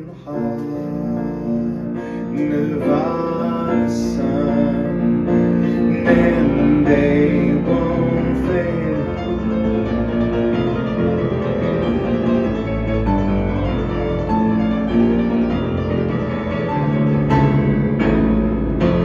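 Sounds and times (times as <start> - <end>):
piano chords: 0.0 - 19.0.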